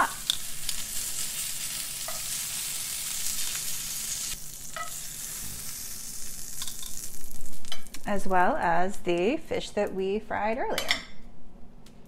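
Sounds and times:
fish sizzling in hot oil: 0.0 - 8.0.

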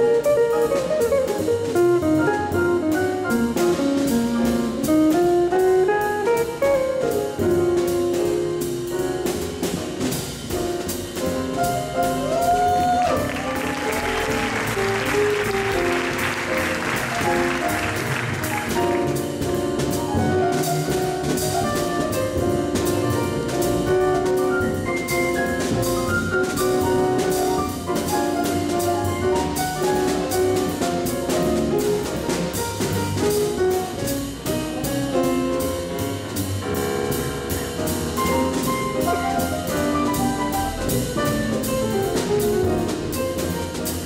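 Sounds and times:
double bass: 0.0 - 44.0
drum kit: 0.0 - 44.0
piano solo: 0.0 - 44.0.

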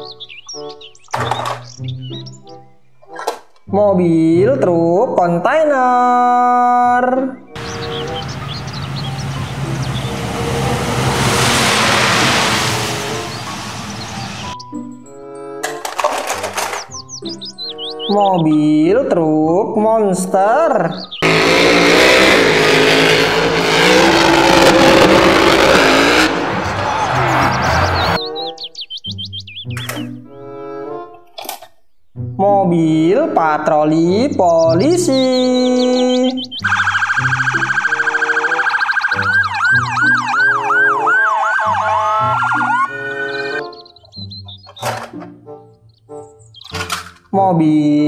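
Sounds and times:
emergency vehicle sirens: 7.6 - 14.6, 21.2 - 28.3, 36.6 - 43.7
loud rushing noise: 7.6 - 14.6, 21.2 - 28.2
truck engine revving hard: 7.6 - 14.6, 21.2 - 28.2.

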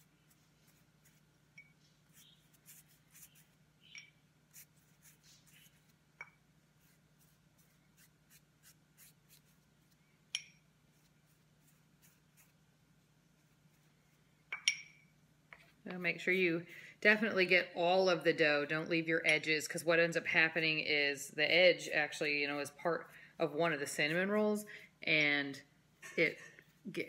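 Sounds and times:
pastry brush brushing dough: 0.0 - 3.8, 4.4 - 14.4, 21.8 - 24.6
brush clinking against bowl: 1.5 - 2.3, 10.3 - 10.7, 14.5 - 15.1.

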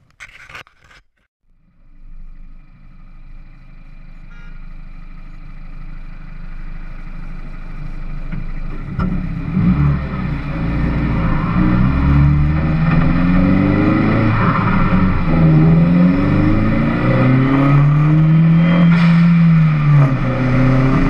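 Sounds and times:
car engine running: 1.5 - 21.0
car engine accelerating away: 5.0 - 21.0.

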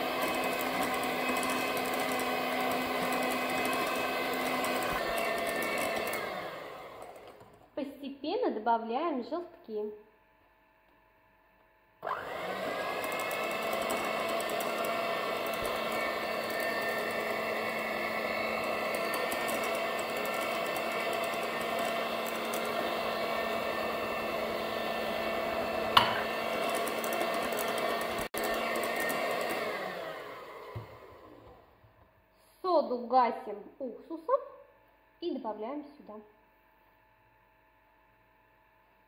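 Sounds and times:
electric hand mixer whisking: 0.0 - 7.6, 12.0 - 31.7.

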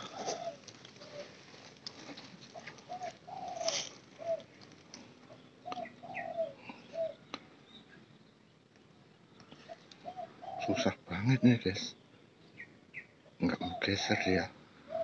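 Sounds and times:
dove cooing: 0.0 - 7.3, 9.5 - 11.9, 13.0 - 15.0.

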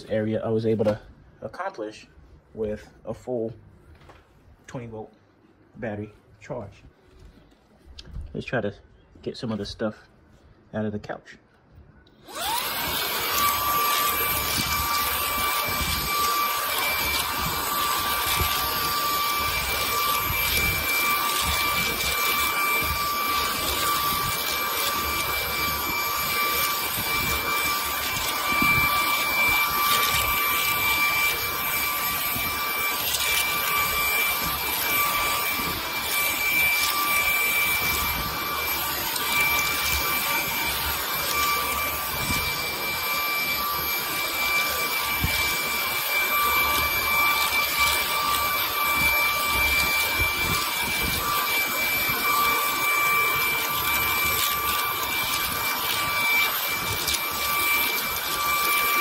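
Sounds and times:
stick vacuum running: 12.0 - 59.0.

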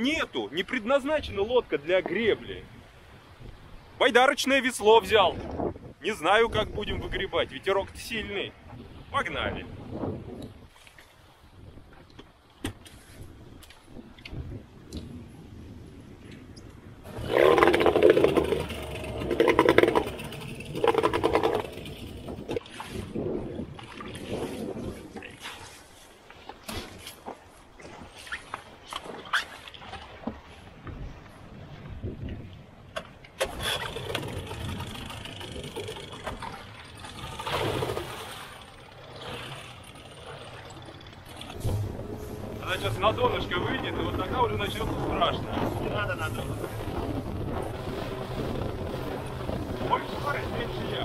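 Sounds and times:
outboard engine cranking: 17.1 - 23.0, 33.0 - 51.0
water splashing: 17.1 - 30.9, 33.3 - 51.0.

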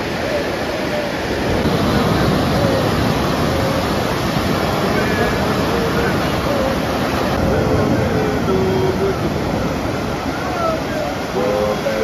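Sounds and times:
ocean surf breaking on beach: 0.0 - 12.0.

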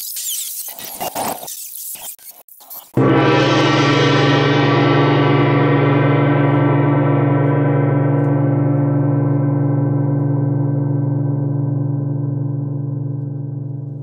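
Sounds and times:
gong ringing: 3.0 - 14.0.

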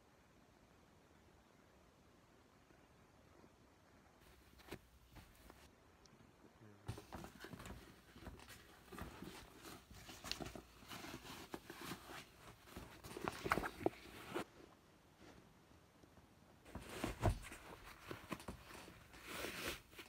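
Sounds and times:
fabric rustling: 4.2 - 5.7, 6.9 - 15.6, 16.6 - 20.0.

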